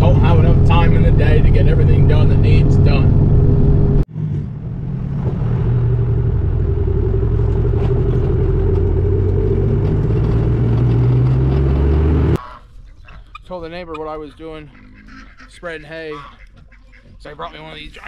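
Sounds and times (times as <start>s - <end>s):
truck engine and road rumble: 0.0s - 12.4s.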